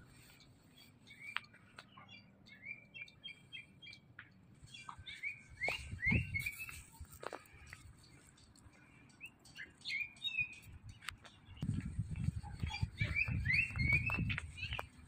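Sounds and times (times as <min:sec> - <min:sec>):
songbirds chirping: 0:00.0 - 0:15.0.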